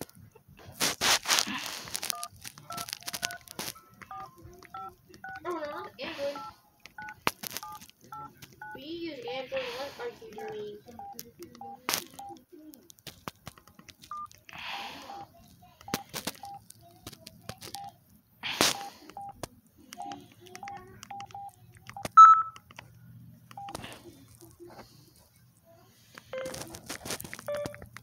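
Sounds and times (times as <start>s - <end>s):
clicks and rustles: 0.0s - 5.4s, 6.8s - 8.8s, 10.3s - 14.6s, 15.3s - 28.0s
phone keypad beeps: 2.1s - 5.5s, 6.4s - 8.8s, 10.3s - 12.4s, 14.1s - 14.3s, 15.0s - 15.3s, 15.9s - 16.6s, 17.5s - 18.0s, 18.8s - 19.4s, 20.0s - 22.6s, 23.5s - 23.8s, 26.3s - 26.6s, 27.4s - 27.9s
loud high beep: 22.2s - 22.6s.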